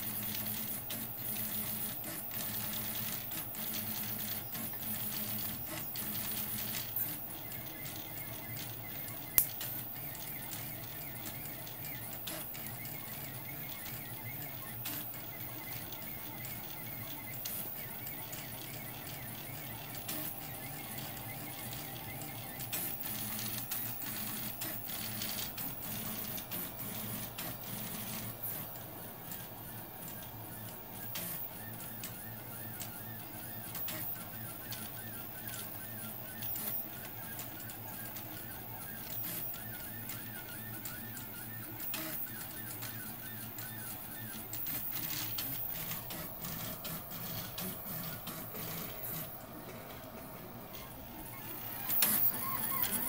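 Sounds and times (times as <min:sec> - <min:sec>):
stepper motors humming: 0:00.4 - 0:30.3, 0:35.4 - 0:53.0
small clicks: 0:07.9 - 0:12.8.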